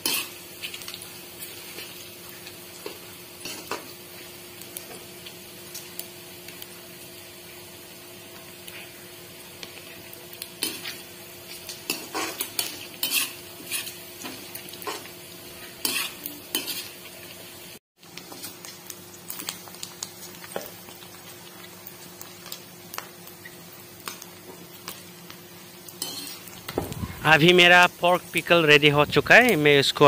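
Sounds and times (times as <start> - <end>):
metal spatula scraping a pan: 0.0 - 0.3, 11.9 - 17.0, 26.0 - 26.5
low sizzle of frying: 0.0 - 30.0.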